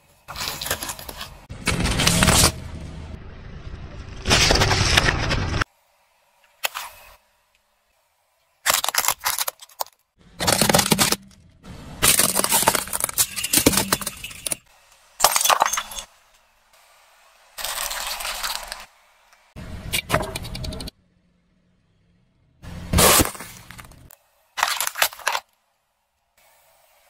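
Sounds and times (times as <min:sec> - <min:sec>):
tyre crushing brittle objects: 0:00.3 - 0:02.6, 0:08.6 - 0:11.4, 0:12.0 - 0:14.6, 0:15.2 - 0:16.1, 0:17.6 - 0:18.9, 0:22.9 - 0:25.5.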